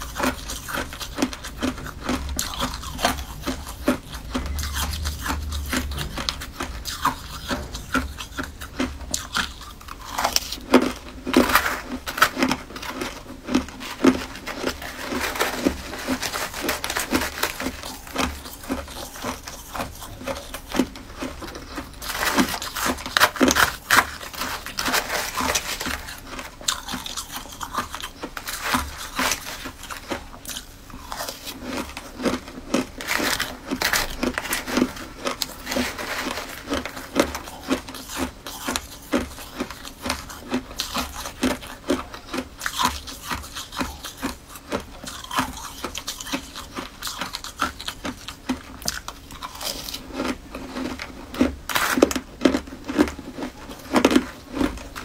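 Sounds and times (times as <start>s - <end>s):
crunching ice: 0.0s - 55.0s.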